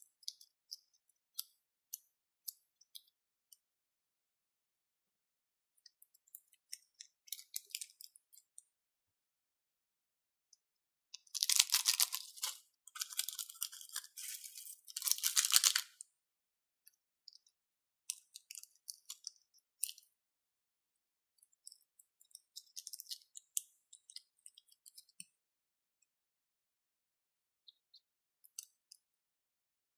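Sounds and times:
plastic bag crinkling: 0:11.4 - 0:15.9.

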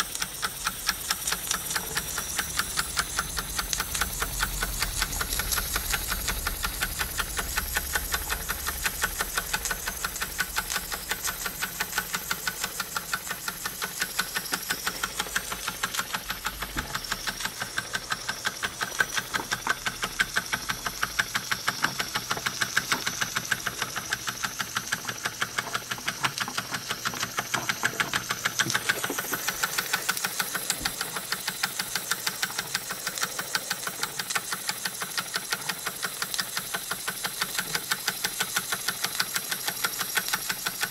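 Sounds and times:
toy steam engine exhaust beat: 0:00.0 - 0:40.9
steam hiss: 0:28.1 - 0:40.9.

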